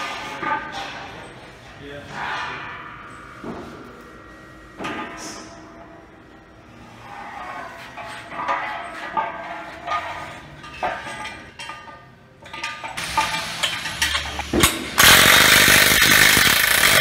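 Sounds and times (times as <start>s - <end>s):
steel parts clanking: 6.9s - 17.0s
impact wrench hammering: 13.0s - 17.0s.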